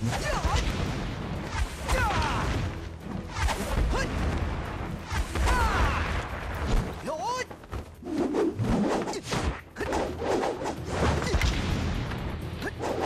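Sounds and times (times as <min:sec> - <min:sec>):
background music: 0:00.0 - 0:13.0
staff and sword swishes: 0:08.0 - 0:11.4, 0:12.6 - 0:13.0.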